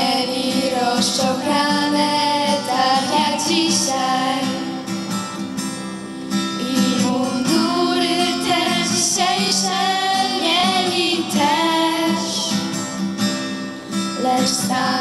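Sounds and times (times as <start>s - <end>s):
young female voices singing: 0.0s - 4.9s, 6.6s - 12.8s, 14.2s - 15.0s
acoustic guitar: 0.0s - 15.0s.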